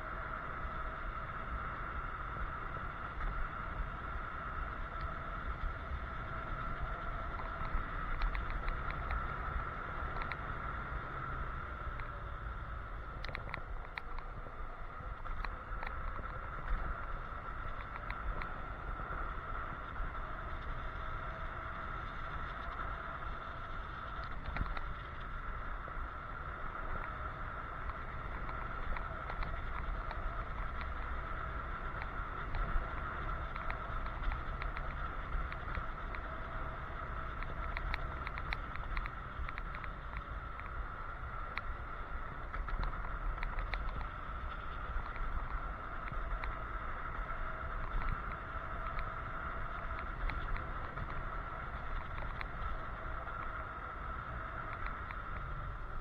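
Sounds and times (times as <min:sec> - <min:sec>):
electric scooter road noise: 0:00.0 - 0:56.0
steady high whine: 0:00.0 - 0:56.0
wind rushing over microphone: 0:00.0 - 0:56.0
light clicks or rattles: 0:06.6 - 0:10.5, 0:13.0 - 0:14.3, 0:22.2 - 0:25.4, 0:26.8 - 0:55.6.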